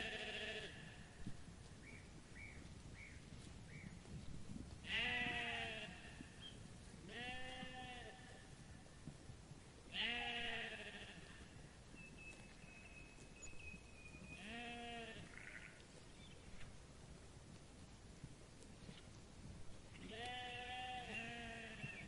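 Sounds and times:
sheep bleating: 0.0 - 1.0, 4.8 - 6.2, 7.1 - 8.4, 9.9 - 11.5, 14.4 - 15.8, 20.0 - 22.0.

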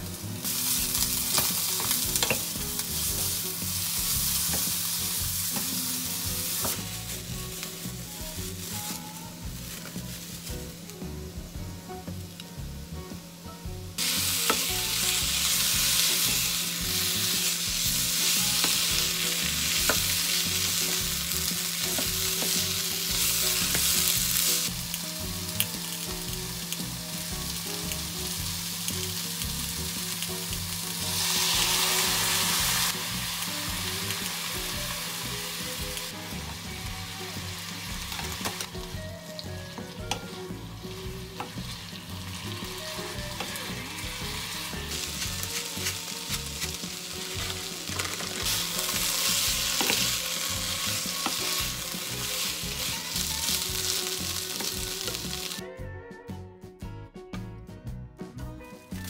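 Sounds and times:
food sizzling in frying pan: 0.0 - 55.6.

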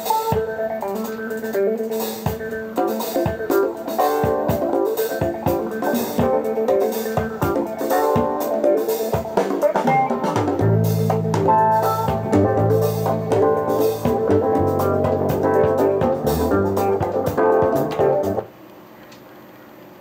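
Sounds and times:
music with guitar and drums: 0.0 - 18.5
strong bass line: 10.6 - 18.4.

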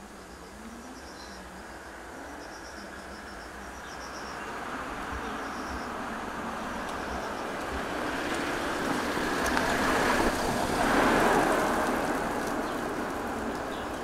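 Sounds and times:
rushing noise: 4.4 - 14.0.

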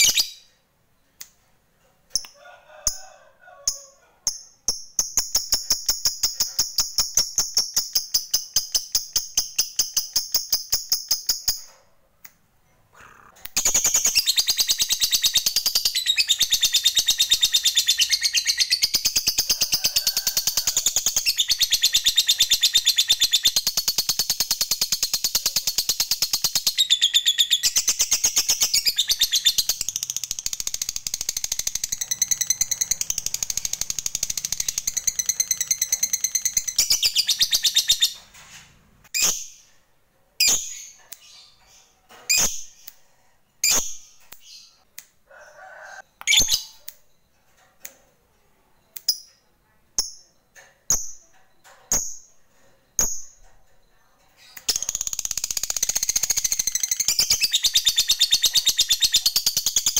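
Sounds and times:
lovebird rapid shrill chatter: 25.7 - 38.1.

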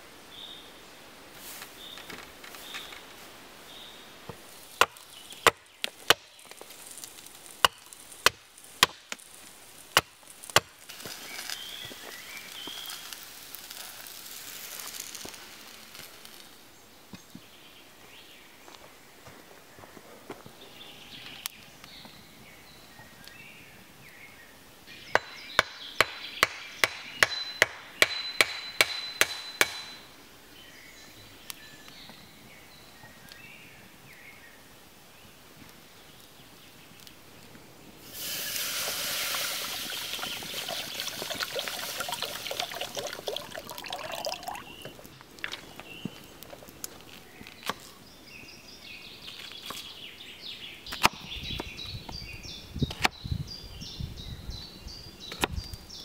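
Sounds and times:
water pouring into pot: 38.1 - 44.9.

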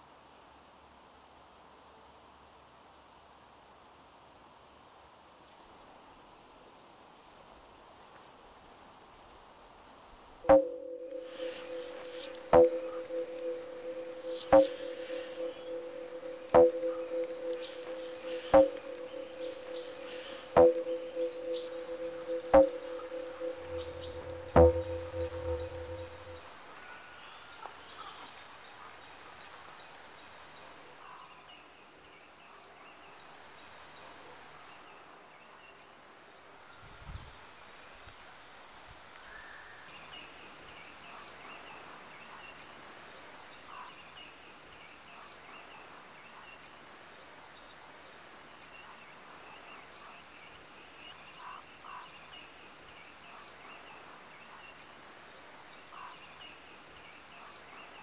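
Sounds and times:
outdoor hush: 10.5 - 26.5.

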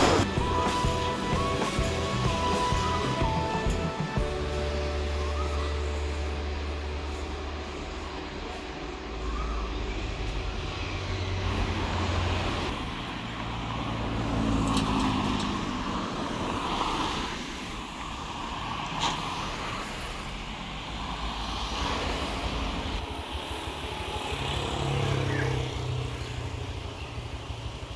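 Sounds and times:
cars driving past: 0.0 - 27.9.

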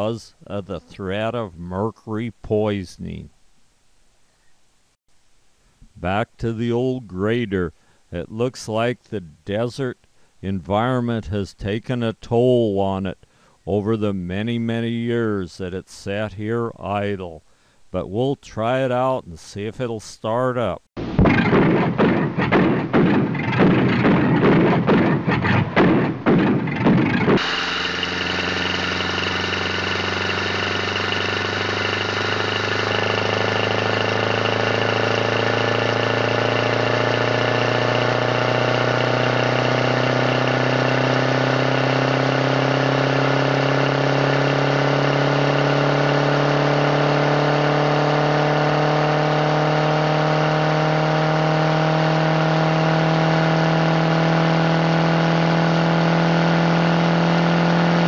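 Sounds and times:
thumps: 21.0 - 36.6
engine running: 21.0 - 58.0.

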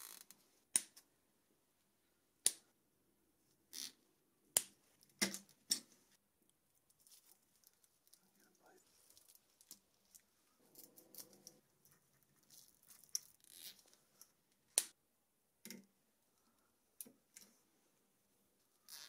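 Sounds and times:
soft rustling of cable sleeving: 4.8 - 14.8.

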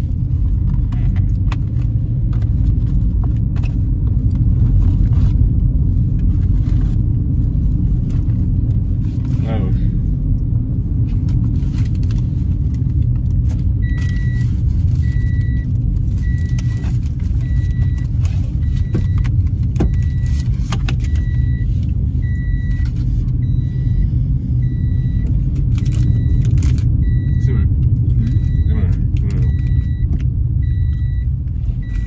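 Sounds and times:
car engine rumbling: 0.0 - 32.0
food wrapper crinkling: 25.6 - 26.9
electronic warning chime beeping: 27.0 - 32.0.

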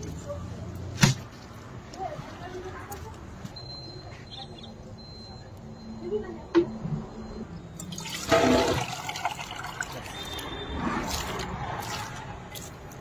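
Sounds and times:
liquid pouring into a pot: 7.9 - 10.4.

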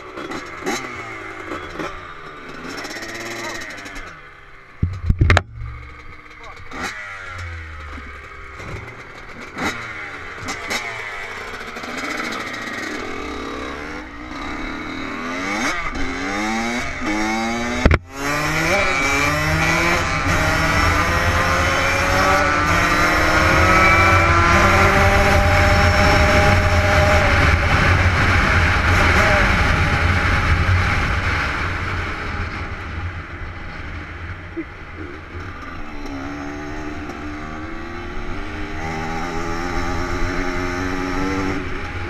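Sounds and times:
dirt bike accelerating: 0.0 - 42.0
dirt bike engines revving: 0.0 - 42.0.

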